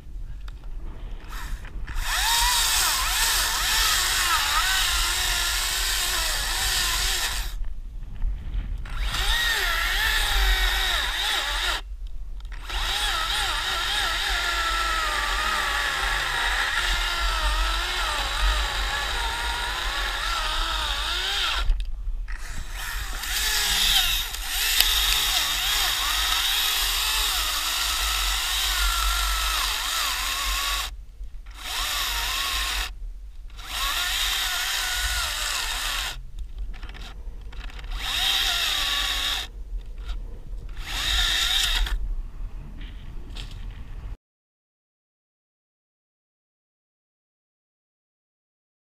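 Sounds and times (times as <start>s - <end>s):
chainsaw cutting tree trunk: 1.3s - 7.6s, 8.9s - 11.8s, 12.5s - 36.2s, 36.8s - 42.0s.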